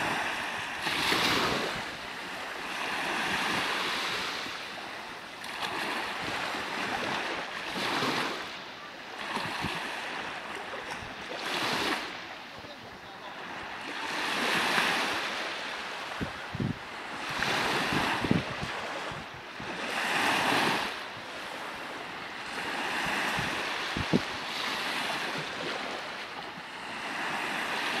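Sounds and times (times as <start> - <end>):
sea waves breaking on shore: 0.0 - 28.0.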